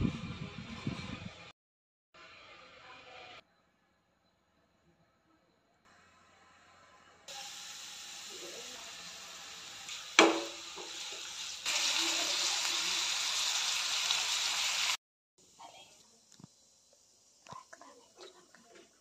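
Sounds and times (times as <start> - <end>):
oil sizzling in frying pan: 7.3 - 15.0
sharp knock: 10.2 - 10.6.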